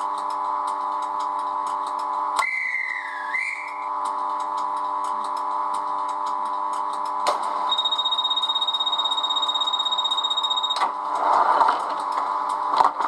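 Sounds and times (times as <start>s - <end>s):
locomotive electric hum: 0.0s - 13.0s
trilling whistle: 2.4s - 3.9s.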